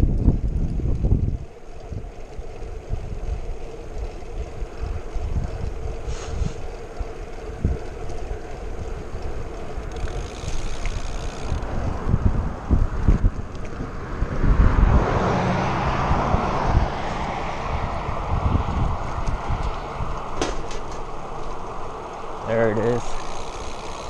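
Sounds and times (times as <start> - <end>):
wind buffeting microphone: 0.0 - 24.0
car passing by: 13.6 - 23.6.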